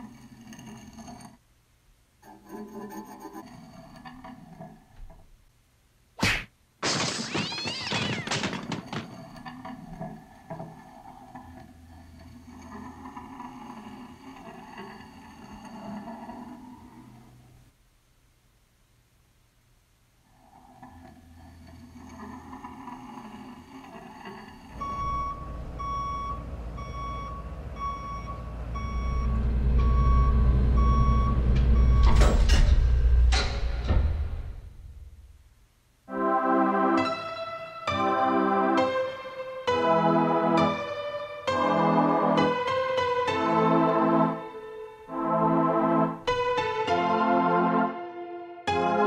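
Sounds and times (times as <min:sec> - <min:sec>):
squeaky warbling animal call: 0:07.1 - 0:08.8
truck reversing beeper: 0:24.6 - 0:33.2
low engine rumble: 0:24.7 - 0:33.4.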